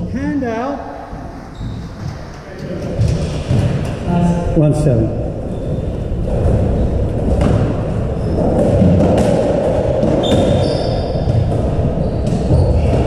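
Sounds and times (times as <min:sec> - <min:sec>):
steady hall hum: 0:00.0 - 0:13.0
shoe squeaks on wooden floor: 0:01.5 - 0:02.3, 0:10.2 - 0:13.0
squash ball hits: 0:06.3 - 0:13.0.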